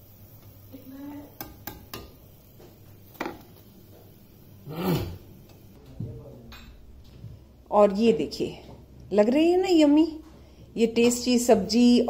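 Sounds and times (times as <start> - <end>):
metal spoon clicking on pan: 1.3 - 2.2.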